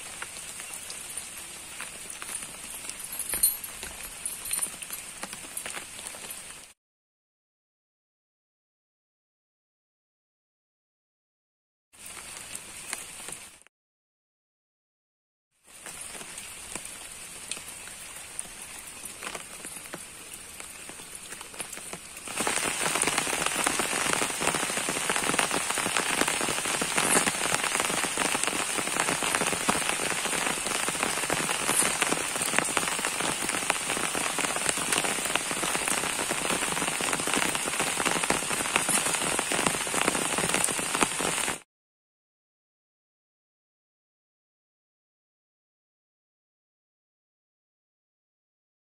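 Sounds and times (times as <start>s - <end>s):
rain on water and leaves: 0.0s - 6.8s, 12.0s - 13.7s, 15.6s - 41.7s.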